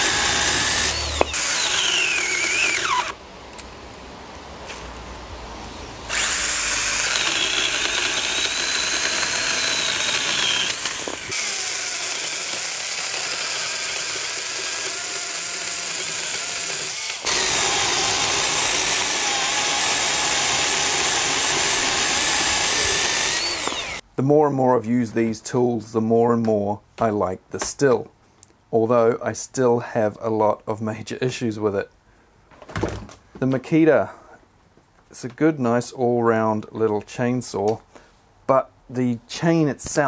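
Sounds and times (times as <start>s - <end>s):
electric chainsaw motor whining: 0.0s - 3.2s, 6.1s - 24.0s
chain rasping through wood: 7.0s - 24.0s.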